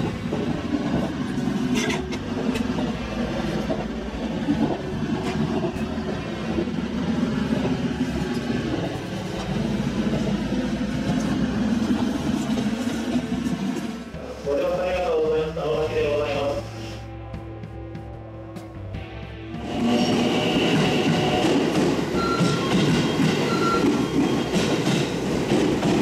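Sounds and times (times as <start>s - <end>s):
wheels clicking over rail joints: 0.0s - 14.0s, 20.7s - 26.0s
train wheels rumbling on rails: 0.0s - 16.9s, 19.6s - 26.0s.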